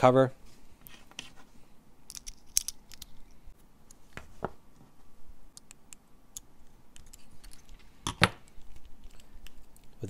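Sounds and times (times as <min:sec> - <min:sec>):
small plastic parts clicking: 0:02.1 - 0:03.3, 0:05.5 - 0:10.0.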